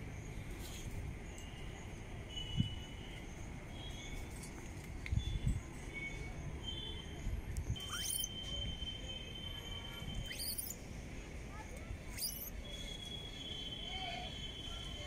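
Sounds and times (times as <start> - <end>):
short high calls: 7.8 - 8.4, 10.1 - 10.8, 12.1 - 12.8
quick rising whistle: 7.8 - 8.6, 10.2 - 10.8, 12.1 - 12.5.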